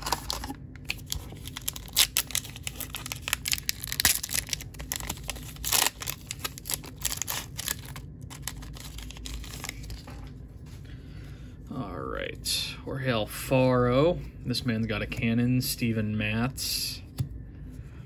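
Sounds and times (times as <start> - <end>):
wrapper crinkling and ripping: 0.0 - 10.2.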